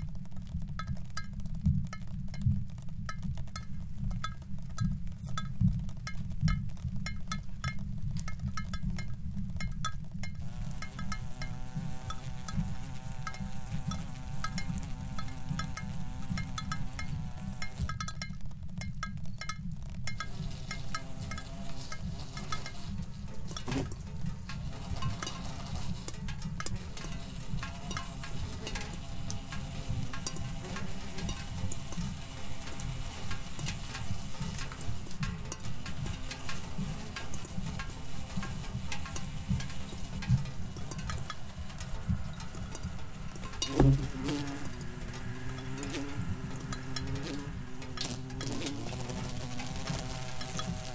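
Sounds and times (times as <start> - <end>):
small sharp clicks: 0.0 - 50.9
low steady hum: 2.6 - 50.9
low fly-like buzzing: 10.4 - 18.1, 20.1 - 50.9
rising and falling glide: 41.7 - 50.9.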